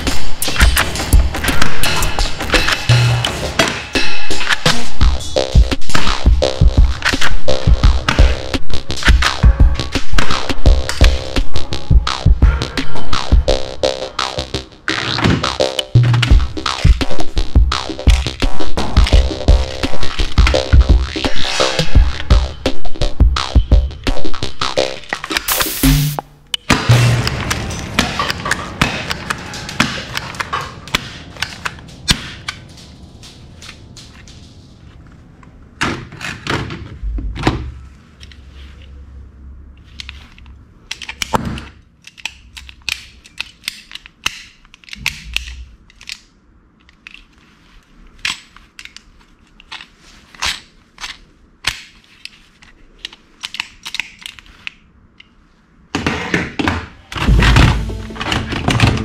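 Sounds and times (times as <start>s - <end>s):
toy guns clacking and knocking: 24.4s - 25.5s, 39.9s - 47.4s, 48.2s - 55.3s.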